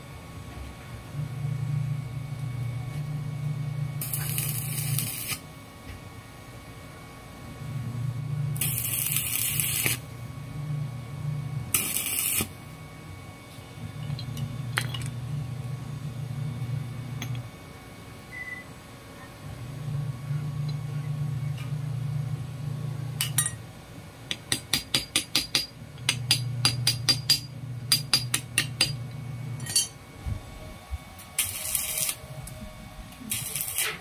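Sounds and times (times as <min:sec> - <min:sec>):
welding arc crackling and hissing: 0:04.0 - 0:05.5, 0:08.6 - 0:10.1, 0:11.7 - 0:12.6, 0:31.2 - 0:34.0
low hum: 0:29.0 - 0:33.8.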